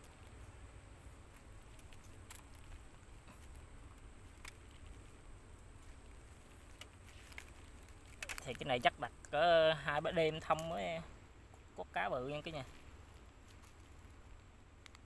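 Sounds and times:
light handling clicks and rustles: 0.0 - 9.4, 12.3 - 15.0
low steady rumble: 0.0 - 15.0.

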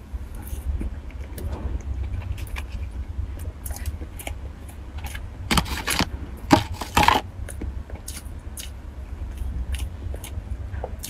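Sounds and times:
plastic tray crackling: 5.5 - 7.2.

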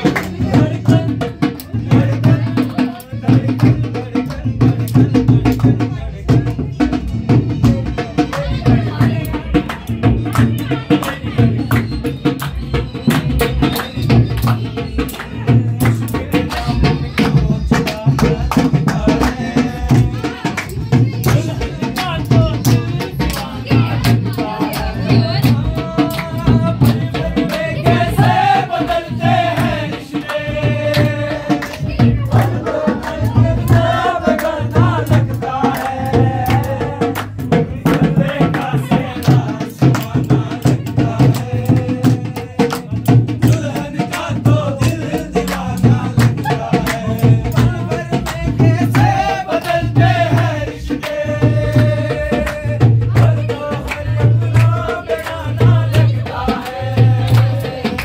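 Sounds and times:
hand drum beating: 0.0 - 58.0
men singing together: 0.0 - 58.0.

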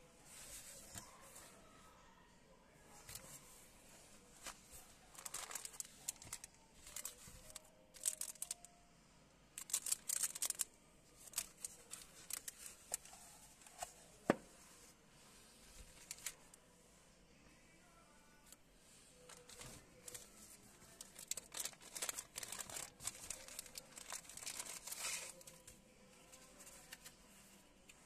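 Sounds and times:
plastic wrapping crinkling: 4.4 - 8.7, 9.6 - 13.9, 15.9 - 16.4, 19.2 - 25.7.

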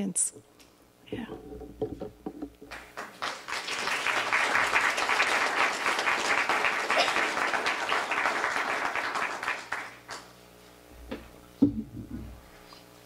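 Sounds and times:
audience applauding: 2.7 - 10.3.

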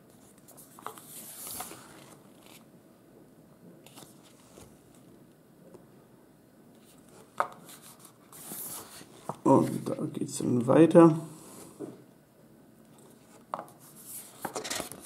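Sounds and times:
page turning swish: 0.8 - 2.6.

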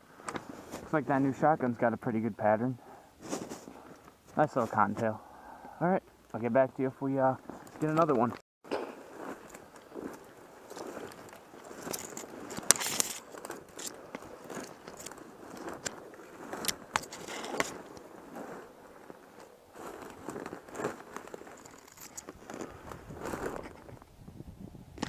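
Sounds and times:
dry brush rustling against clothing: 3.2 - 3.8, 8.9 - 21.8
footsteps crunching: 3.2 - 5.2, 6.4 - 24.0.

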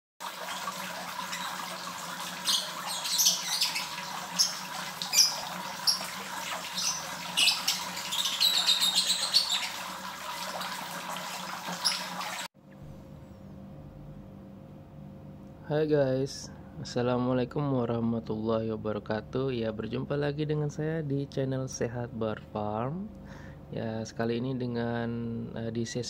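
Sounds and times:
small birds chirping: 2.4 - 9.9, 11.8 - 12.4
faint steady hum: 12.6 - 26.0.

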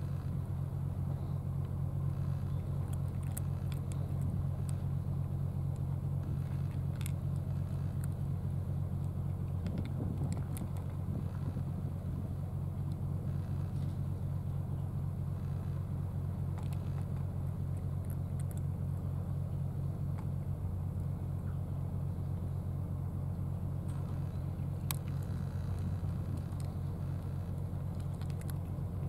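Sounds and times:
engine idling: 0.0 - 29.0
faint clicks: 23.9 - 28.8.

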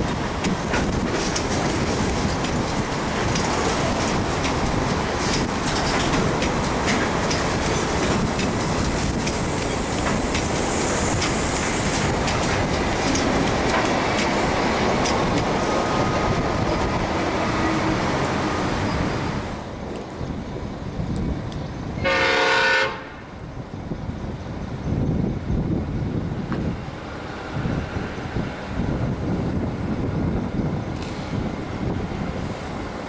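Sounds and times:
train wheels clicking over rail joints: 0.0 - 19.1, 25.0 - 33.0
steady train rumble: 0.0 - 33.0.

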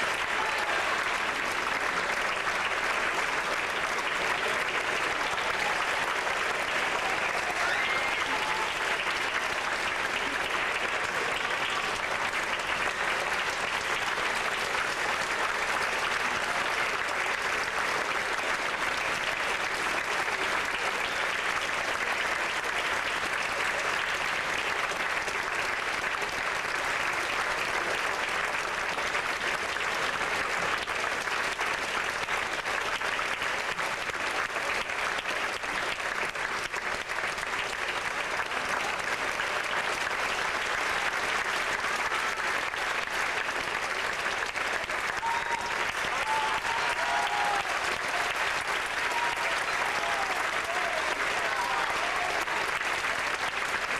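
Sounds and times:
large audience applauding: 0.0 - 53.9.

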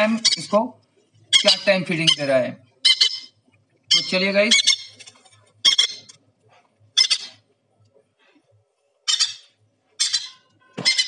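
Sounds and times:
parrot chick begging squawks: 1.3 - 5.0, 5.6 - 6.1, 7.0 - 7.4, 9.0 - 11.0.

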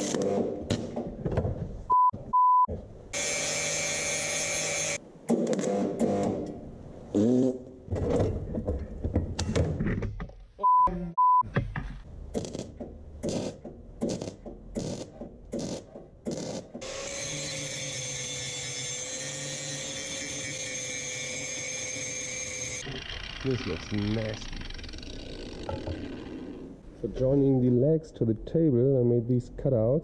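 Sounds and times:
short loud beeps: 10.6 - 11.4
angle grinder whining: 16.8 - 26.8.

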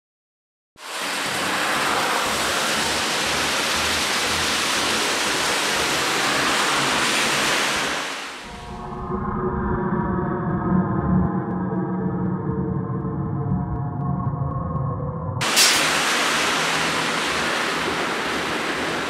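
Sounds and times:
steady rushing hiss: 0.8 - 8.5, 15.4 - 19.0.

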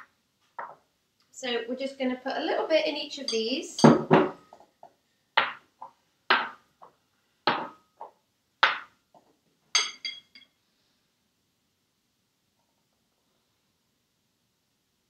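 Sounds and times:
glass jars knocking on wood: 3.8 - 4.6
spoon clinking against glass: 9.8 - 10.5.

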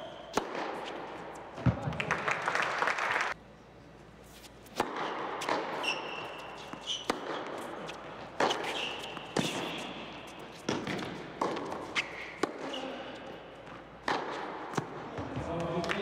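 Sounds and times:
racket hitting tennis ball: 0.3 - 1.9, 4.3 - 15.3
crowd clapping: 1.9 - 3.4
shoes squeaking on court: 4.2 - 14.5.

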